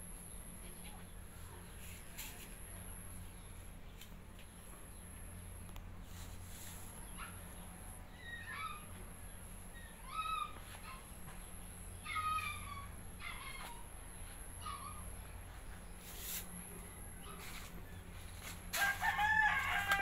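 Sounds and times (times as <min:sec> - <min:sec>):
steady low hum: 0:00.0 - 0:20.0
high-pitched animal calls: 0:08.1 - 0:11.1, 0:11.9 - 0:13.9.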